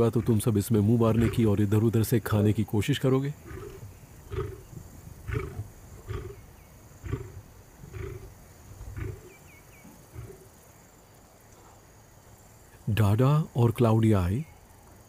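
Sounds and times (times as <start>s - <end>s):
lion roaring in deep grunts: 0.0s - 0.5s, 1.1s - 1.5s, 3.4s - 8.3s, 8.9s - 9.4s, 10.0s - 10.5s.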